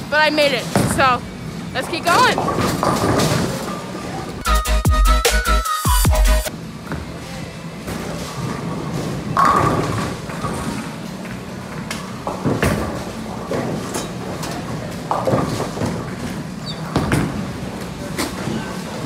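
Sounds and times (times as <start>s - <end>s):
bowling ball rolling: 2.3s - 4.0s, 7.9s - 11.1s, 11.8s - 17.8s.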